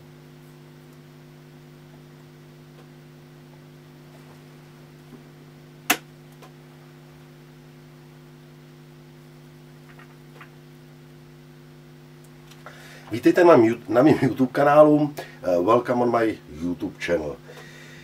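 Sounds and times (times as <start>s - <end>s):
mains hum: 0.0s - 18.0s.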